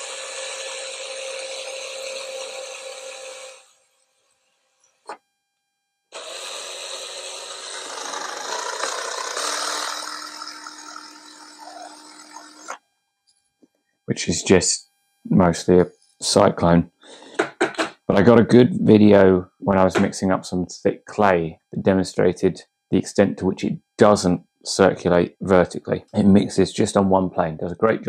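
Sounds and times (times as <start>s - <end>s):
drill mixer whining: 0.0s - 5.2s, 6.1s - 12.9s.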